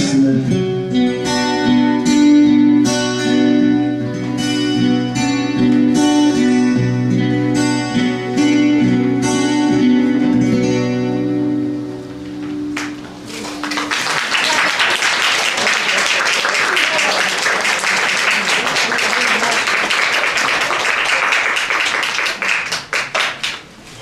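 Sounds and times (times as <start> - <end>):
audience applauding: 12.7 - 23.7.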